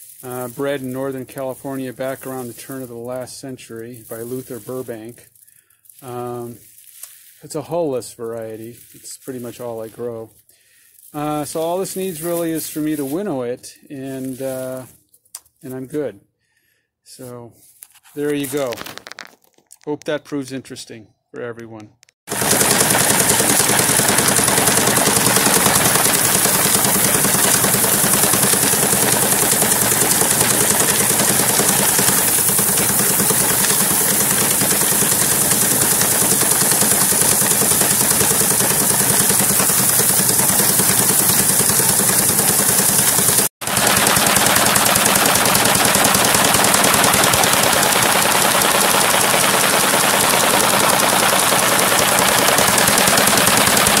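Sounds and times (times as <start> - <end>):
threshing machine rattling: 0.0 - 2.9, 22.3 - 54.0.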